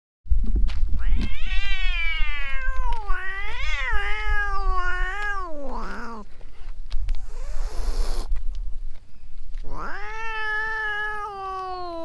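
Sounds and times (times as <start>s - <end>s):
cat yowling: 1.0s - 6.2s, 9.7s - 12.0s.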